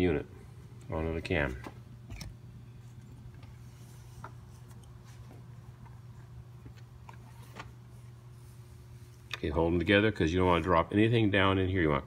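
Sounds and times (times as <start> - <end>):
steady low hum: 0.0 - 12.0
faint clicks and rubs of metal parts: 1.6 - 9.5.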